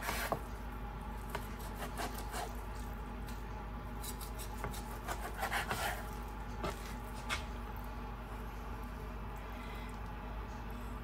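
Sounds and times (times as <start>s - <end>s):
knife slicing meat on board: 0.0s - 0.5s, 1.3s - 2.8s, 4.0s - 7.5s
low steady hum: 0.0s - 11.0s.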